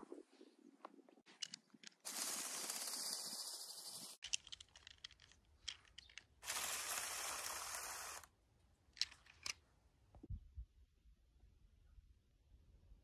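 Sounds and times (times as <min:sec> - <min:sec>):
toy bulldozer motor whirring: 0:06.0 - 0:08.3.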